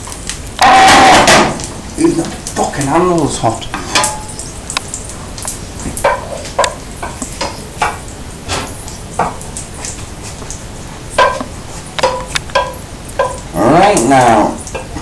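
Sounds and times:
food sizzling: 0:00.0 - 0:15.0
utensil scraping metal cookware: 0:03.7 - 0:04.3.

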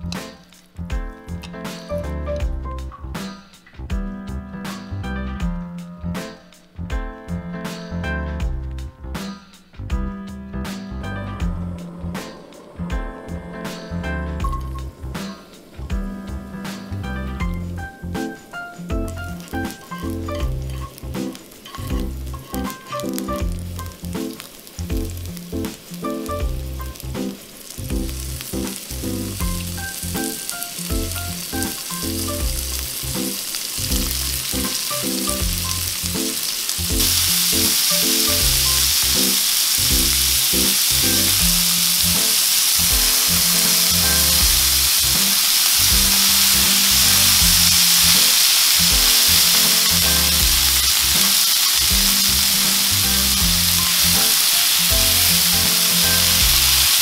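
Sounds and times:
background music: 0:00.0 - 0:57.0
food sizzling in a pan: 0:11.7 - 0:57.0.

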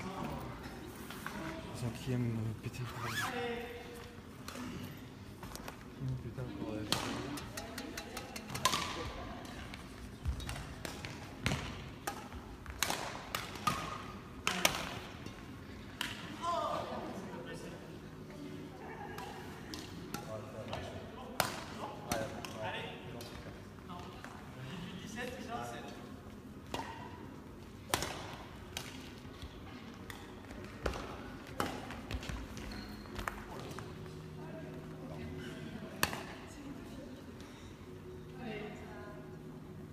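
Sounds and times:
racket striking shuttlecock: 0:10.5 - 0:14.9, 0:27.9 - 0:29.0
rackets striking shuttlecock: 0:36.0 - 0:36.3.

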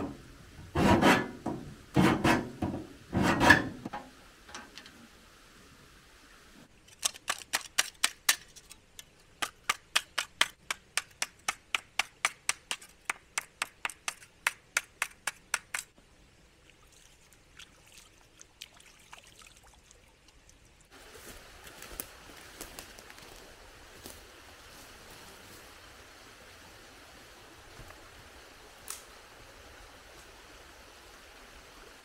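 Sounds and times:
small stream rushing: 0:00.0 - 0:32.0.

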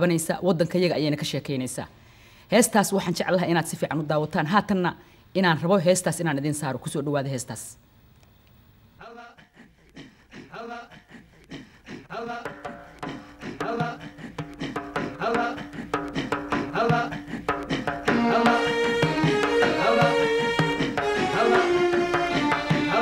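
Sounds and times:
drum beats: 0:12.2 - 0:23.0
band playing: 0:12.5 - 0:23.0
pitched instrument notes: 0:17.5 - 0:23.0.

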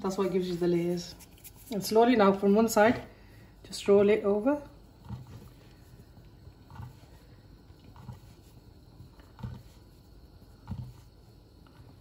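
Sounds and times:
hands rolling dough on board: 0:07.9 - 0:12.0.

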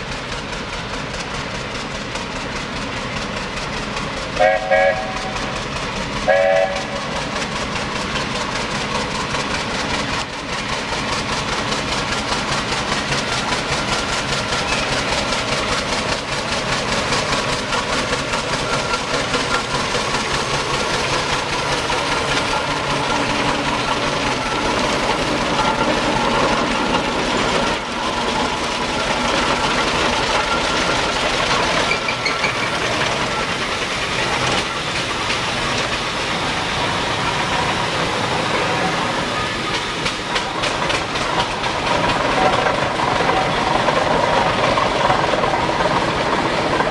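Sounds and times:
steam traction engine running: 0:00.0 - 0:46.9
steam whistle toot: 0:04.4 - 0:05.4, 0:06.3 - 0:07.1.

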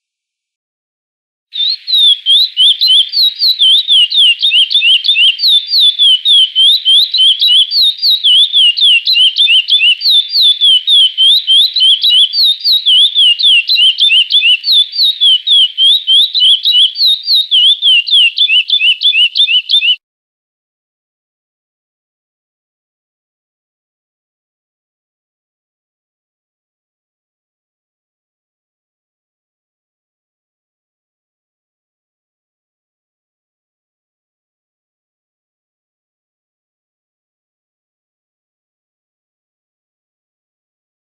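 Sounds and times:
finch singing whistled notes: 0:01.6 - 0:20.0.

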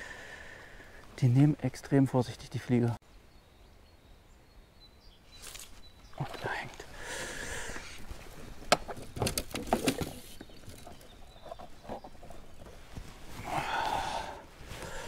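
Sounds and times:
fishing gear clicks and knocks: 0:08.3 - 0:13.3.

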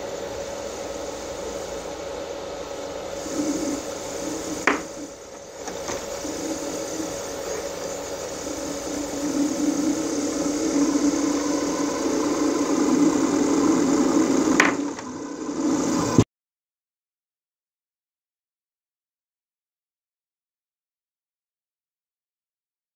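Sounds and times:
electric motor humming: 0:00.0 - 0:16.2.

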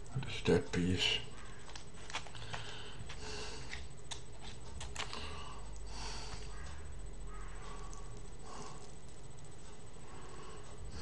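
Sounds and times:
steady low hum: 0:00.0 - 0:11.0
man chewing with wet smacks: 0:03.7 - 0:06.8.

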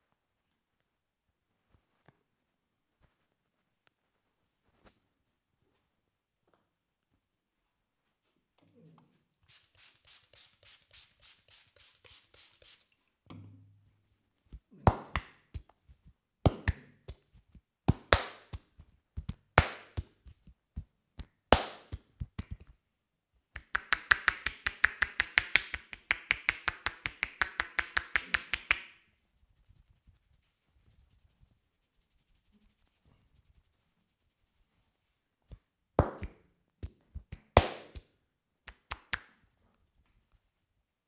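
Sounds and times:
hands tapping in massage: 0:14.5 - 0:22.8, 0:23.6 - 0:29.0, 0:35.5 - 0:38.1
loud hand slaps: 0:14.9 - 0:15.4, 0:16.5 - 0:16.9, 0:17.9 - 0:18.6, 0:19.6 - 0:20.1, 0:21.5 - 0:22.6, 0:36.0 - 0:38.1.

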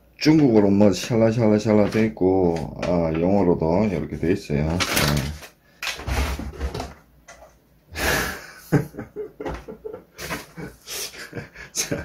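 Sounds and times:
cardboard rustling and scraping: 0:00.4 - 0:07.0.

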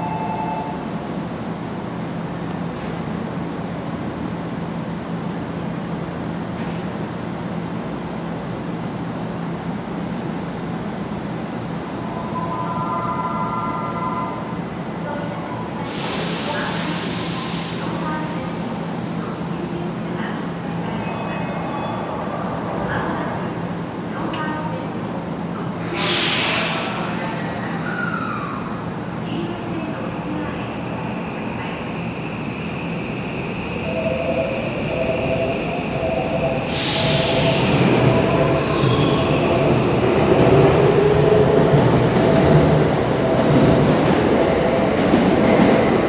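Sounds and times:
hiss: 0:15.9 - 0:18.0, 0:25.9 - 0:27.1, 0:36.7 - 0:37.8
train electrical hum: 0:28.6 - 0:46.0
high hiss: 0:36.5 - 0:38.7.

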